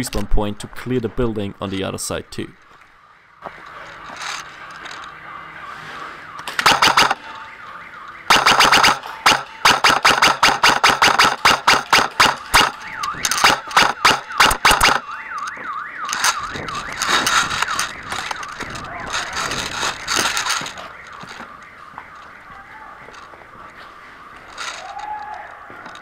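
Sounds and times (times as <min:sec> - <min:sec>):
warbling siren-like tone: 0:02.9 - 0:26.0
airsoft guns firing: 0:06.5 - 0:07.3, 0:08.3 - 0:15.1.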